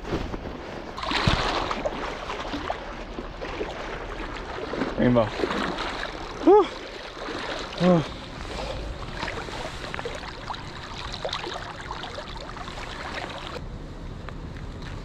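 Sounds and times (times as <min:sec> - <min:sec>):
shallow river water rippling: 0:00.7 - 0:13.6
small splashes and drips: 0:01.0 - 0:08.3, 0:09.0 - 0:13.6.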